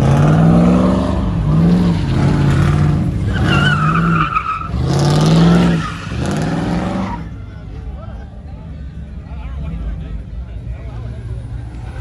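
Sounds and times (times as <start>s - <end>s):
car engine revving: 0.0s - 7.4s
tire squeal: 0.0s - 7.6s.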